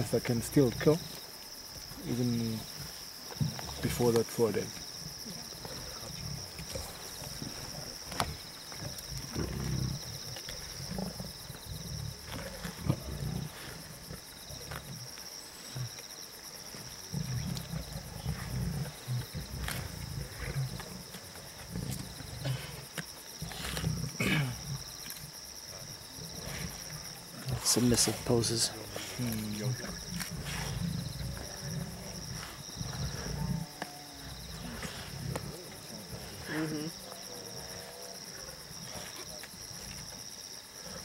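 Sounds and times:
lions growling: 1.8 - 41.0.

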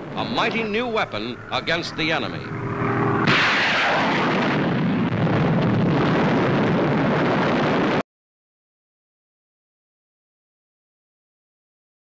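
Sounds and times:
rocket rushing rumble: 0.0 - 8.0.

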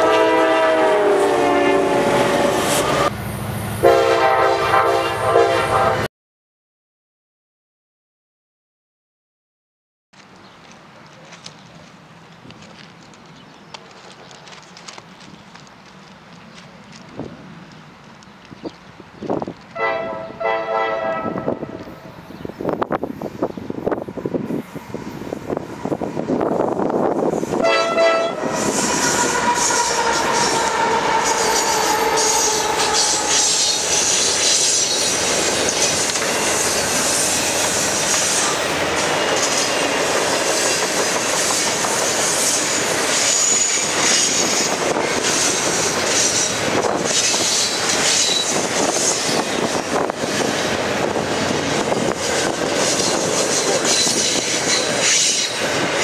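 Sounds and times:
locomotive horn: 0.0 - 3.1, 3.8 - 6.1, 19.7 - 22.1, 27.5 - 35.1
train rumble and wheel clatter: 0.0 - 6.0, 10.2 - 56.0
high wheel squeals: 28.5 - 40.2, 41.5 - 50.1.

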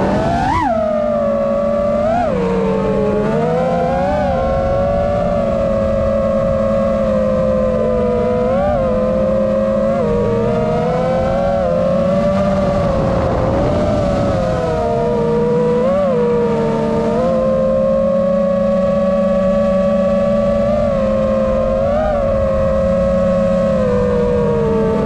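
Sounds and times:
quadcopter motors whining: 0.0 - 25.0.

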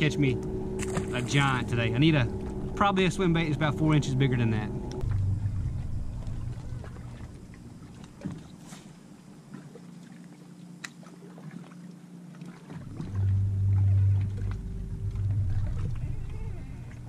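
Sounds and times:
electric trolling motor humming: 0.0 - 8.3, 12.1 - 17.0
faint motor whine: 0.0 - 17.0.

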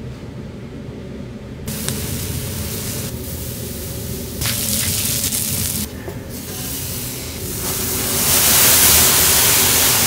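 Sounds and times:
food sizzling on a griddle: 4.4 - 5.9, 7.6 - 10.0.

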